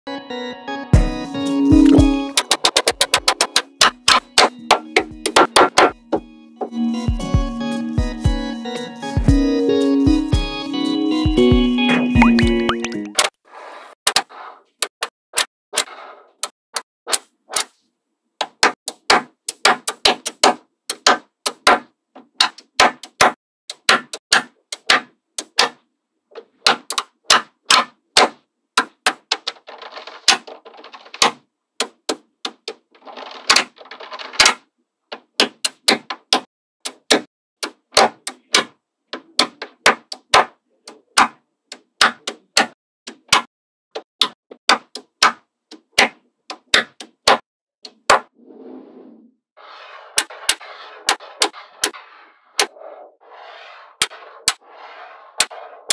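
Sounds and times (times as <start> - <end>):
rattling clatter of many balls: 29.3 - 31.3, 32.9 - 34.6.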